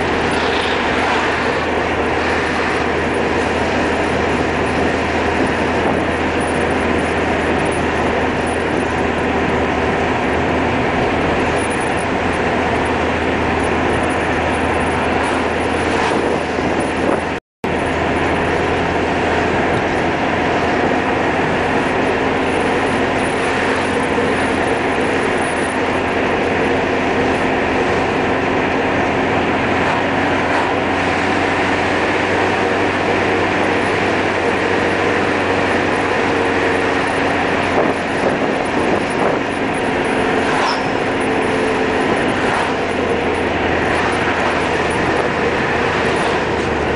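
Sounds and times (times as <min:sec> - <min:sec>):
car engine and tyre noise: 0:00.0 - 0:46.9.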